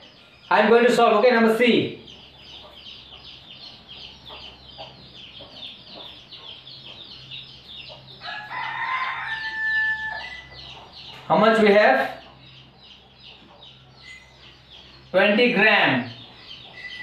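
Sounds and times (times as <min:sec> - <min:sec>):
rooster crowing: 0:08.2 - 0:10.6.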